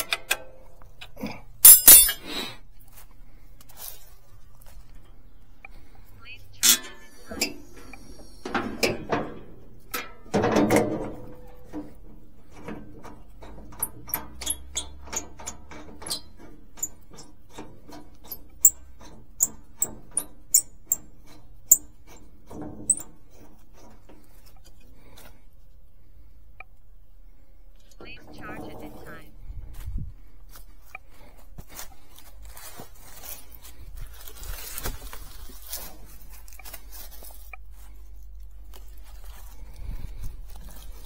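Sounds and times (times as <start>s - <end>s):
metal clatter: 1.6s - 2.2s, 6.6s - 24.4s.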